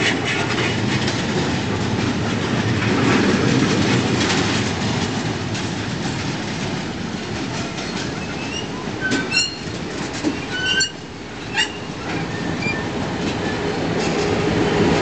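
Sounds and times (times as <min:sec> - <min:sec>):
train wheels rumbling and clicking: 0:00.0 - 0:15.0
high-pitched wheel squeals: 0:08.3 - 0:09.7, 0:10.4 - 0:12.9.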